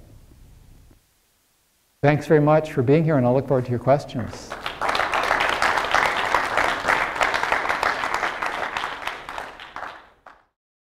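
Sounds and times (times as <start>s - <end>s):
audience applauding: 4.3s - 10.5s.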